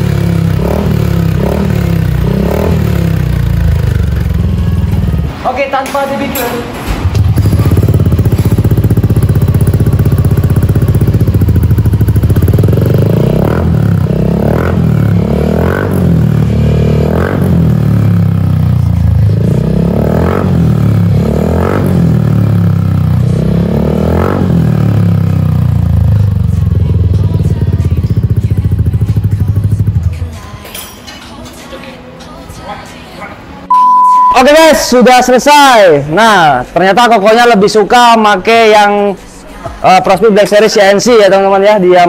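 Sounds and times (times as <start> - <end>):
scooter engine idling and revving: 0.0 - 5.6, 7.0 - 30.4.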